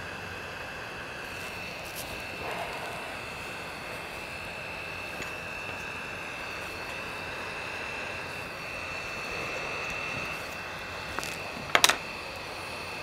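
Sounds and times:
hot air blower hissing: 0.0s - 13.0s.

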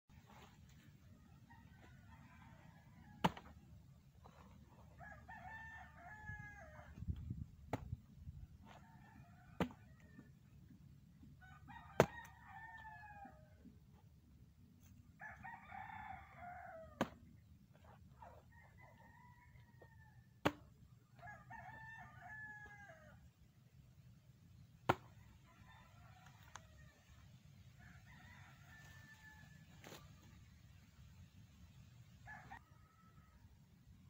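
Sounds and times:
roosters crowing: 1.1s - 3.6s, 4.2s - 7.1s, 8.4s - 10.6s, 11.3s - 13.8s, 15.2s - 20.3s, 21.1s - 23.3s, 25.3s - 30.1s.

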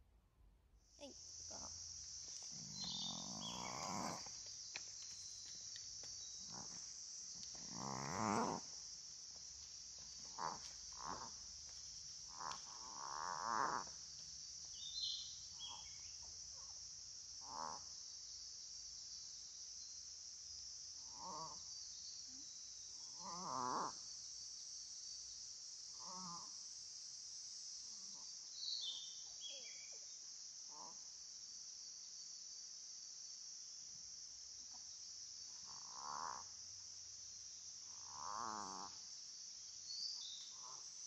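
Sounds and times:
high insect drone: 0.8s - 41.0s
faint bird chirps: 2.6s - 4.2s, 14.8s - 16.3s, 28.6s - 30.2s.

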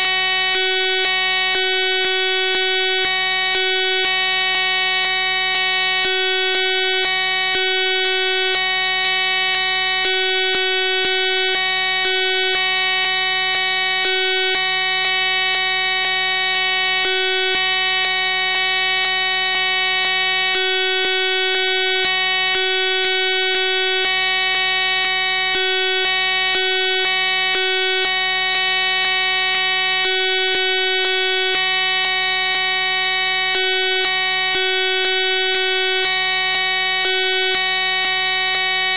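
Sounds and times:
electronic buzz: 6.6s - 22.5s.

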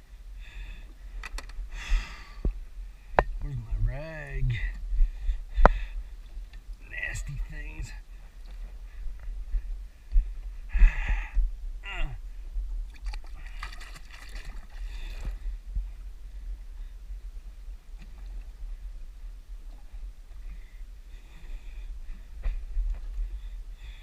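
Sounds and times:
wind rumbling on microphone: 0.0s - 24.0s
water lapping against boat hull: 12.9s - 15.5s.

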